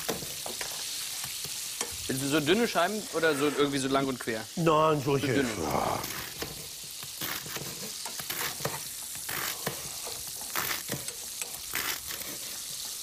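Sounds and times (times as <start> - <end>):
fish sizzling in a frying pan: 0.0 - 13.0
spatula scraping a pan: 6.1 - 13.0.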